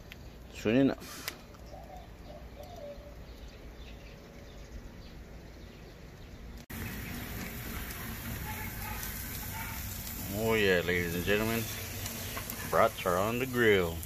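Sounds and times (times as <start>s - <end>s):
faint bird chirps: 1.6s - 9.0s
sausages sizzling on a grill: 6.7s - 14.0s.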